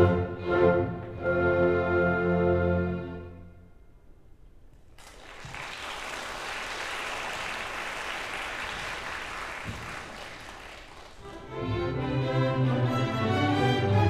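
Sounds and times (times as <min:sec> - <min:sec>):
audience applauding: 0:04.9 - 0:11.5.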